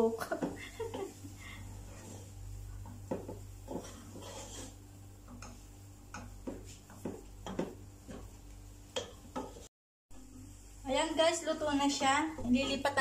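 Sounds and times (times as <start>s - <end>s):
steady low hum: 0.0s - 13.0s
wooden spoon scraping metal pot: 3.2s - 8.3s.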